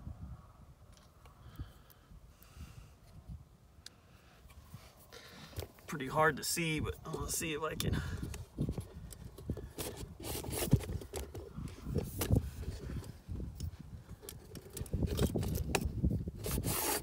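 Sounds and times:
handling clicks and rustles: 4.4s - 17.0s.

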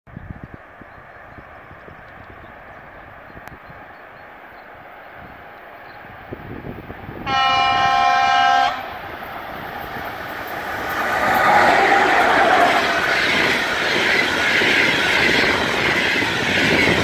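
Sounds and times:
train rushing past: 6.4s - 17.0s
locomotive horn blast: 7.2s - 9.0s.

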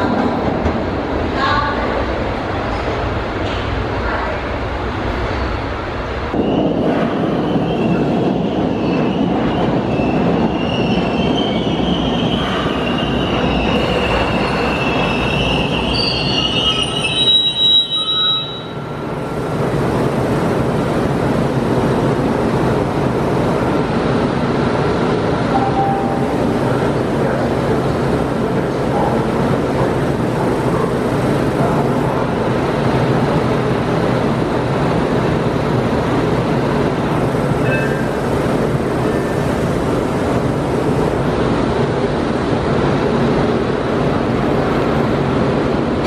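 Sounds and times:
train wheels rumbling on rail: 0.0s - 46.0s
steel wheels squealing: 6.4s - 18.9s, 37.6s - 38.1s.

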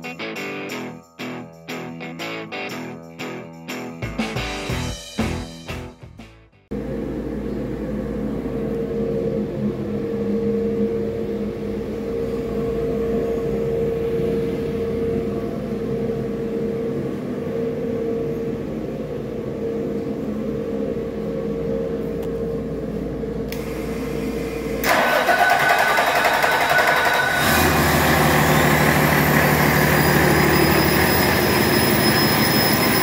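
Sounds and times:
steady mechanical hum: 6.7s - 33.0s.

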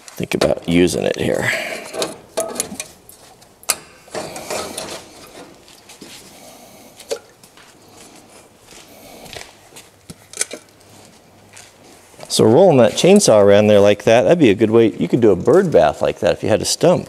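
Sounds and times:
rustling: 1.0s - 13.6s.

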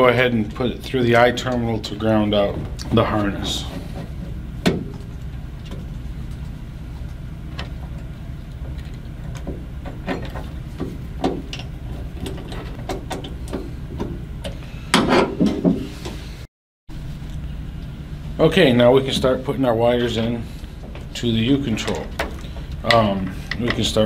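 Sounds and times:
steady low hum: 0.0s - 24.0s
metal and wire clicks and scrapes: 2.8s - 16.1s.

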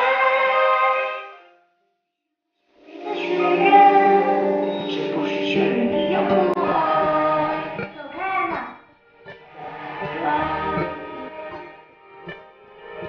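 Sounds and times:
stage show music with singing: 2.8s - 8.6s, 9.2s - 13.0s.

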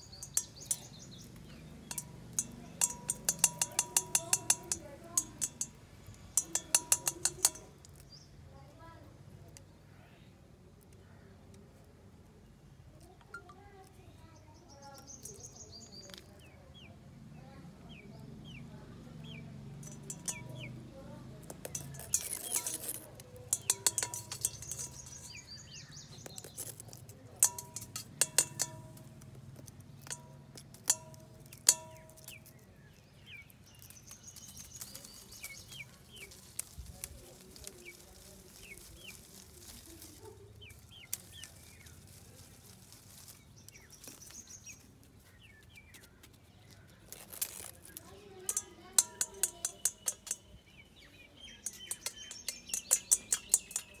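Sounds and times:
sharp clicking taps: 0.0s - 5.8s, 51.6s - 54.0s
small birds chirping: 0.0s - 54.0s.

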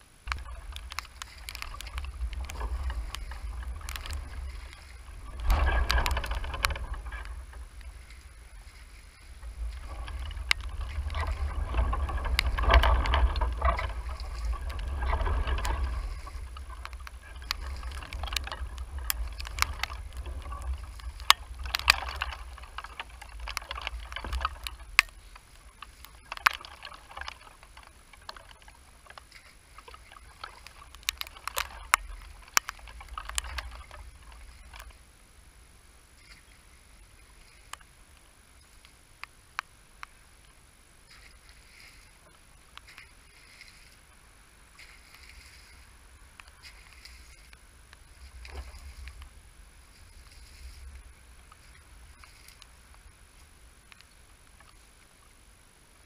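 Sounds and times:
low microphone rumble: 0.0s - 37.6s
rake splashing and scraping in water: 0.3s - 35.1s, 41.1s - 54.8s.

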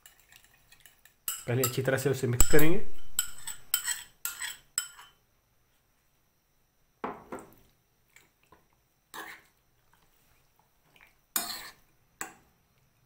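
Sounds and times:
spoon scraping and clinking bowl: 0.0s - 5.2s, 9.1s - 9.5s, 11.4s - 11.8s.

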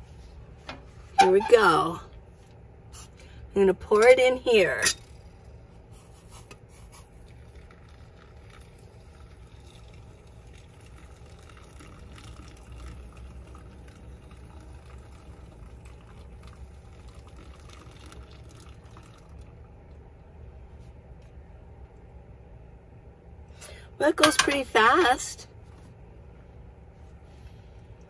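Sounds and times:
water trickling through coffee filter: 5.1s - 20.0s.

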